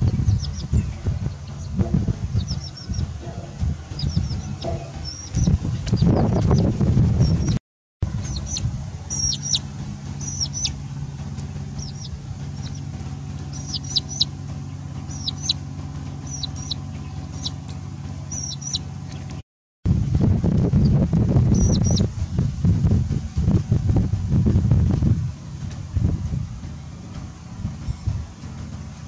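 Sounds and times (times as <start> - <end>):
small animal peeping calls: 0.0 - 7.6, 8.2 - 10.8, 11.8 - 15.6, 16.2 - 19.4, 20.8 - 22.1
loud rumble: 0.0 - 29.0
steady low hum: 0.0 - 29.0.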